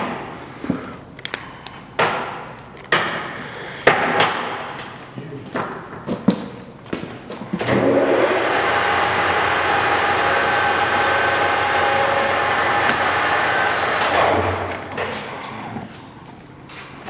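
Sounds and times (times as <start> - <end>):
lathe gear whine: 7.7 - 14.7.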